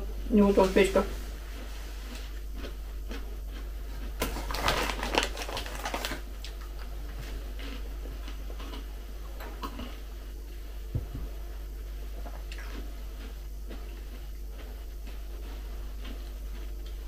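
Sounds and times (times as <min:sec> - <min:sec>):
plastic packaging crinkling: 0:04.2 - 0:06.9.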